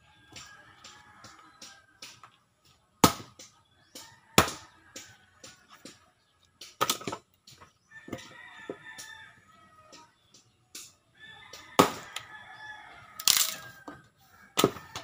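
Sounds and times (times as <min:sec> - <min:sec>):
axe chopping firewood: 0:00.3 - 0:06.0, 0:06.6 - 0:08.2, 0:11.6 - 0:12.2, 0:14.5 - 0:15.0.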